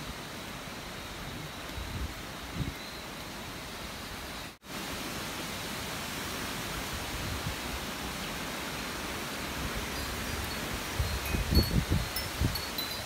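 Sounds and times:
rain and wind hiss: 0:00.0 - 0:13.0
wind rumble on microphone: 0:09.7 - 0:13.0.

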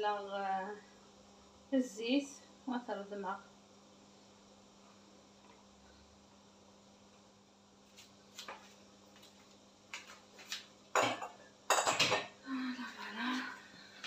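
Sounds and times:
kitchenware clattering: 0:10.9 - 0:12.4.

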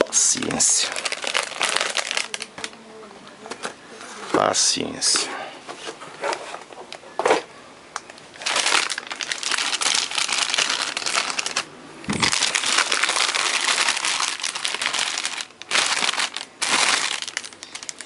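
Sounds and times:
plastic bag crinkling: 0:00.0 - 0:02.8, 0:08.3 - 0:18.0.

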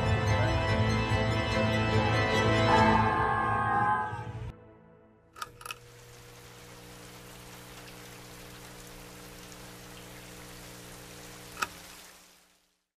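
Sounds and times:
sharp click: 0:05.4 - 0:05.8
low steady hum: 0:05.4 - 0:12.7
rain falling: 0:05.5 - 0:12.9.

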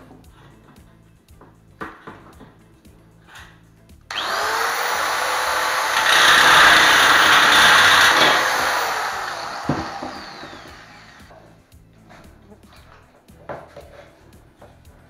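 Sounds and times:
power tool cutting metal: 0:04.1 - 0:11.3.

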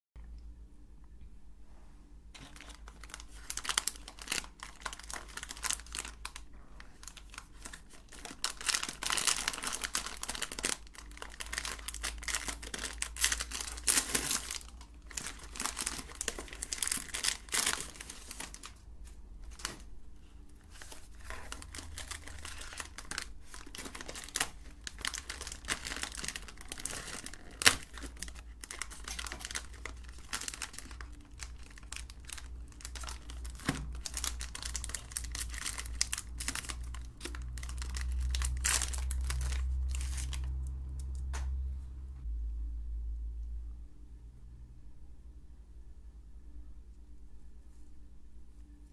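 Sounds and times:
plastic wrapper crinkling and tearing: 0:02.4 - 0:19.9, 0:20.7 - 0:41.5.

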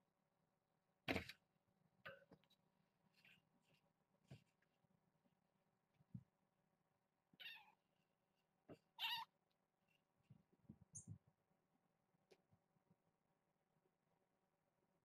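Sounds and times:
kittens meowing: 0:07.4 - 0:07.8, 0:09.0 - 0:09.3.

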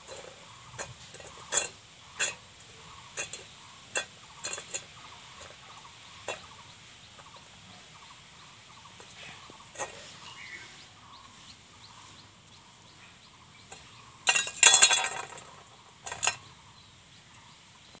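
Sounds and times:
metal bowl clattering on concrete: 0:00.0 - 0:06.5, 0:09.7 - 0:10.1, 0:13.7 - 0:16.5.

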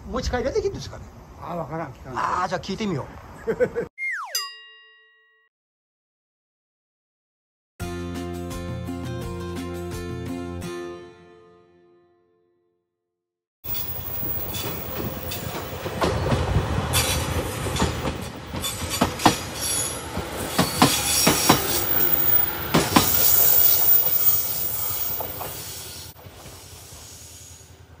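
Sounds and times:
wheels clicking over rail joints: 0:13.7 - 0:27.1
train rumbling past: 0:13.7 - 0:28.0.

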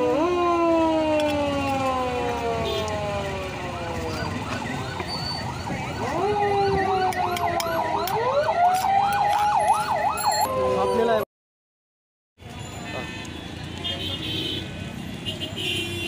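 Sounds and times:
siren wailing and yelping: 0:00.0 - 0:11.2.

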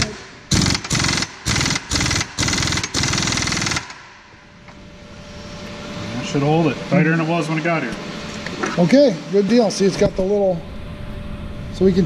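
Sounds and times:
pneumatic impact wrench hammering: 0:00.0 - 0:04.3.

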